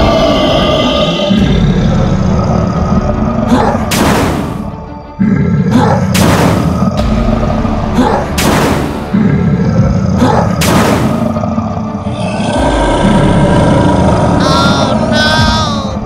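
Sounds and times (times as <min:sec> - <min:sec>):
background music with steady beat: 0:03.4 - 0:09.6
cartoon booming crashes: 0:10.6 - 0:11.3.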